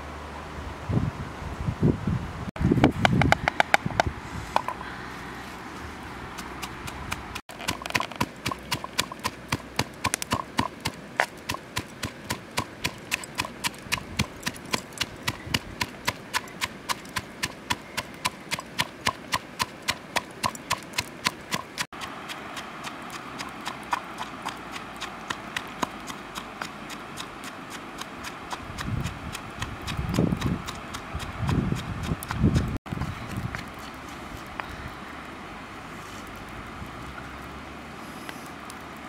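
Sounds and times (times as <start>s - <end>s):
pestle pounding in stone mortar: 6.4s - 22.2s.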